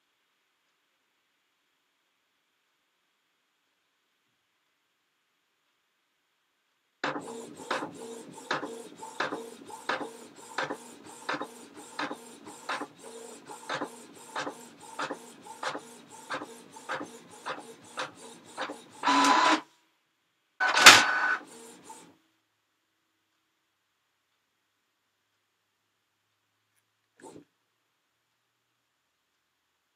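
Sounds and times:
printer clicking and whirring: 7.0s - 19.6s, 20.6s - 22.1s
printer clunk and rattle: 7.0s - 19.6s, 20.6s - 22.0s.

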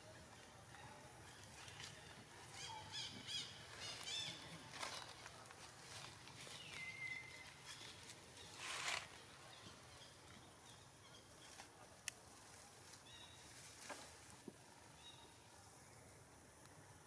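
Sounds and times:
short rustle: 7.6s - 9.2s.

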